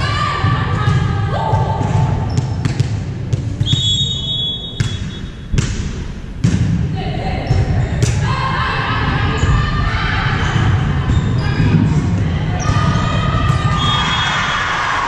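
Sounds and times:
volleyball being struck: 0:04.8 - 0:06.9
sneakers squeaking on hardwood: 0:10.4 - 0:14.2.

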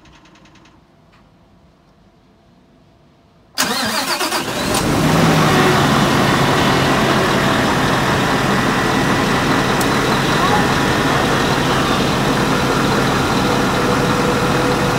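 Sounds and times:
diesel engine starting and idling: 0:03.6 - 0:14.9.

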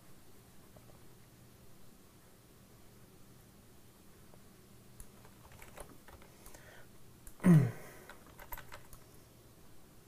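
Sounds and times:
computer mouse and keyboard clicks: 0:05.0 - 0:07.4, 0:08.0 - 0:09.1
person clearing throat: 0:07.4 - 0:08.0.

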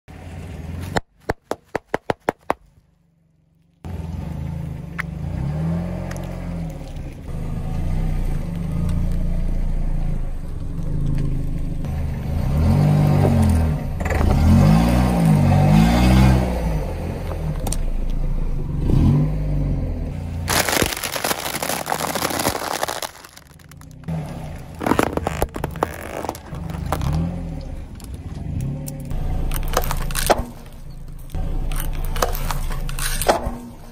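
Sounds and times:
loud crackling burst: 0:20.5 - 0:24.0
tyre crushing plastic objects: 0:20.5 - 0:27.4, 0:29.5 - 0:30.6.

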